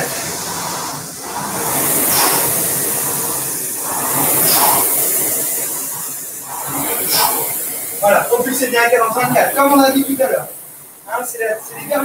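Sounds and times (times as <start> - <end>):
rowing machine fan whooshing: 0.0 - 12.0.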